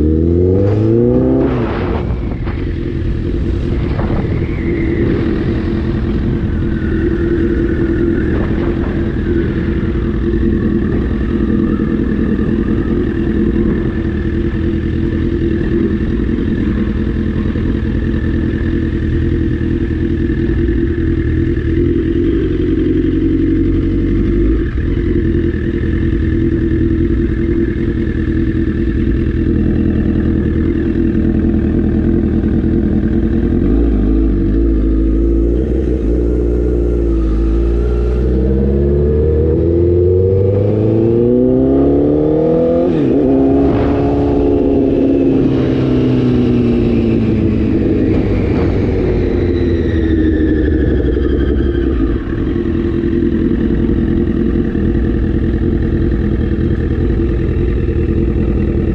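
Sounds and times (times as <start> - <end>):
motorcycle engine cruising: 0.0 - 58.9.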